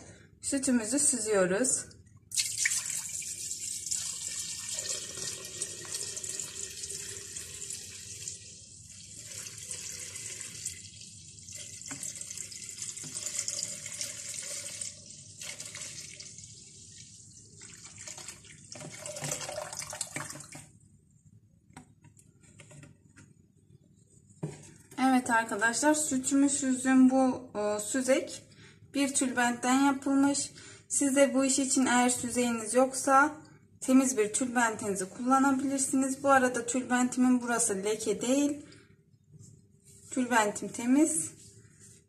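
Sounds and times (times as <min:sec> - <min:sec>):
milk pouring and splashing: 0:02.3 - 0:20.8.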